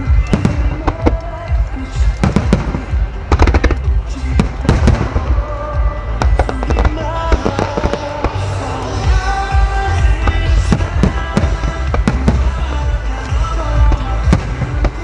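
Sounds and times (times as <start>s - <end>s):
fireworks booms and cracks: 0.0s - 13.0s, 13.8s - 15.0s
music with held notes: 0.0s - 15.0s.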